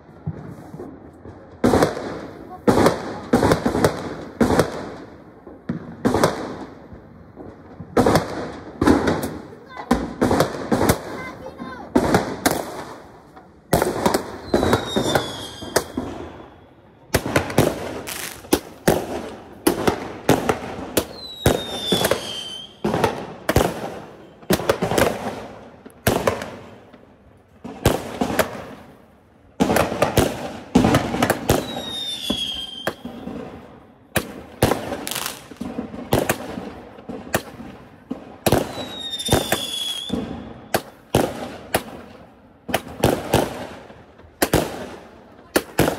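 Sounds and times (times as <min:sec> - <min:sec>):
firework bangs with crackling: 0:00.0 - 0:45.9
firework shell whistling: 0:14.3 - 0:18.5, 0:21.0 - 0:22.8, 0:31.5 - 0:33.4, 0:38.6 - 0:41.1.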